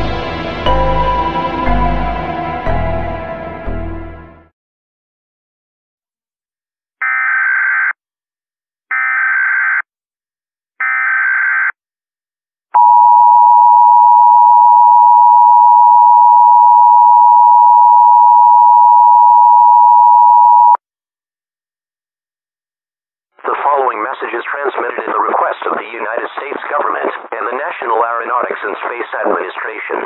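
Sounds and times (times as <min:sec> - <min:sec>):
steady two-tone alert signal: 0:00.6 - 0:03.4.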